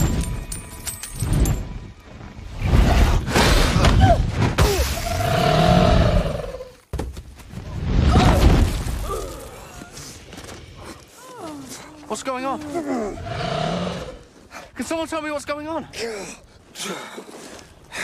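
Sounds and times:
dragon roaring: 5.0s - 6.6s.

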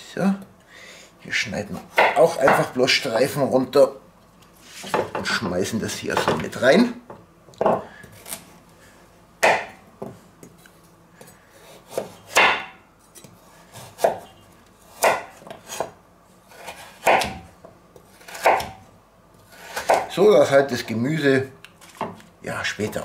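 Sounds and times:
knife cutting carrots on board: 11.6s - 14.3s, 14.9s - 18.8s, 19.4s - 20.1s.

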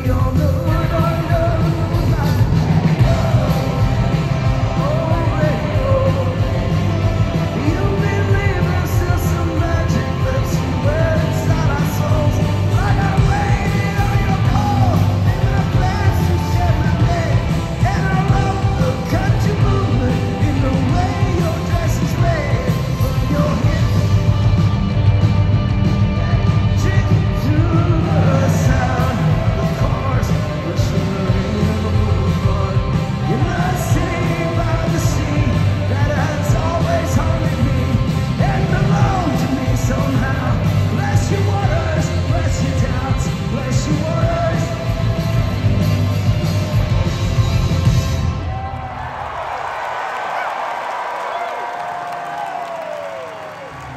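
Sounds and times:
man singing lead vocal: 0.0s - 24.9s, 26.0s - 47.0s
live rock band playing: 0.0s - 48.7s.

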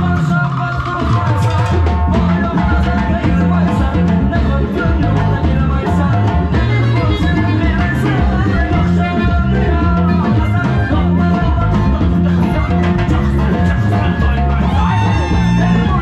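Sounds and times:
keyboard: 0.0s - 16.0s
man singing through microphone: 0.0s - 16.0s
steady drum beat: 0.0s - 16.0s.

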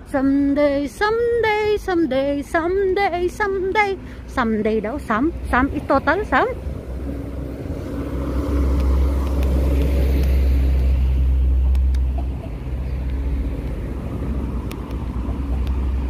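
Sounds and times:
low vehicle rumble: 0.0s - 16.0s.

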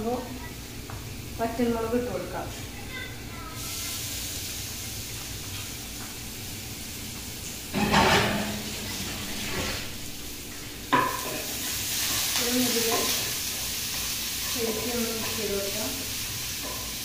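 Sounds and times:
paste sizzling in hot oil: 3.6s - 5.8s, 10.9s - 17.0s
spoon stirring in pan: 11.0s - 15.8s.

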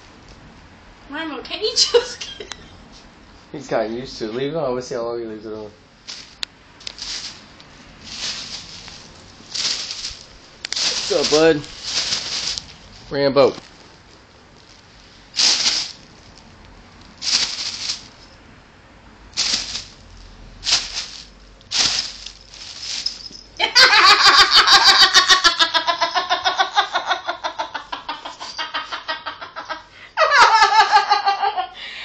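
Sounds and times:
rapid pulsing human laughter: 23.6s - 31.8s.

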